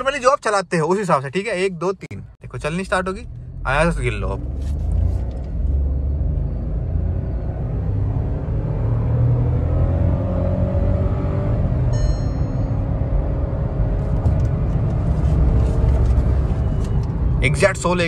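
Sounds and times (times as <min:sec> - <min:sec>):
car engine accelerating: 0:02.8 - 0:18.0
short electronic chime: 0:11.9 - 0:12.9.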